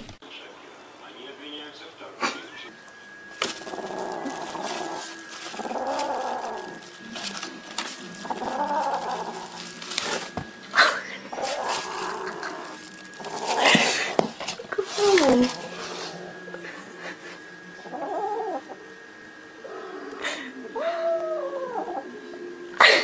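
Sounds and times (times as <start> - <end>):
plastic bag crinkling: 3.3 - 15.9
cat growling: 3.4 - 17.2, 17.8 - 18.8, 19.6 - 23.0.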